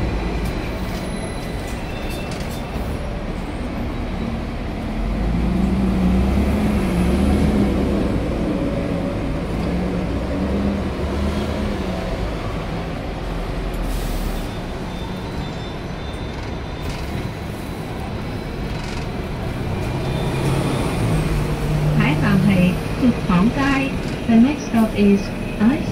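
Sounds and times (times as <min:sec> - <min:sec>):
tram wheels rumbling on rail: 0:00.0 - 0:25.9
tram motor hum: 0:14.6 - 0:25.9.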